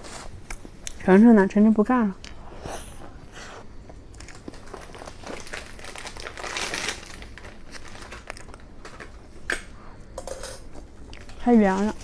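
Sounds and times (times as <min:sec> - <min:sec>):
food tearing with crinkly rustle: 0:04.1 - 0:09.3.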